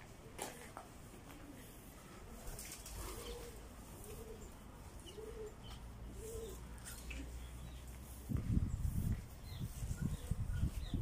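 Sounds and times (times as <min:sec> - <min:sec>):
pigeon cooing: 0:00.2 - 0:07.6.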